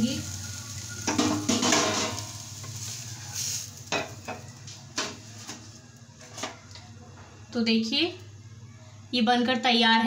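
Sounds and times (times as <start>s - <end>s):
spatula scraping frying pan: 0.5s - 4.4s
utensils knocking on pan and plate: 1.0s - 2.4s, 3.9s - 5.2s.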